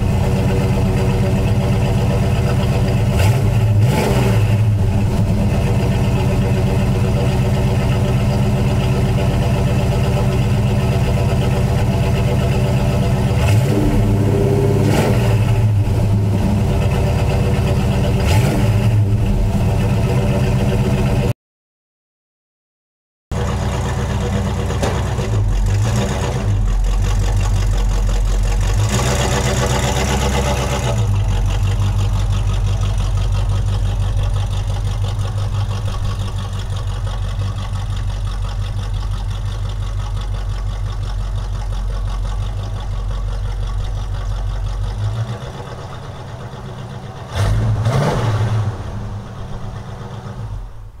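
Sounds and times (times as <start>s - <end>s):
car engine idling and revving: 0.0s - 21.3s, 23.3s - 51.0s.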